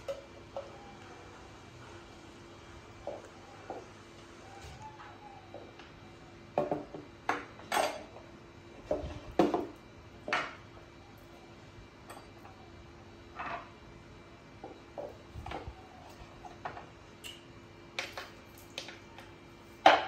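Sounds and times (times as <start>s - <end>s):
faint steady hum: 0.0s - 20.0s
cups knocking on table: 6.6s - 7.5s.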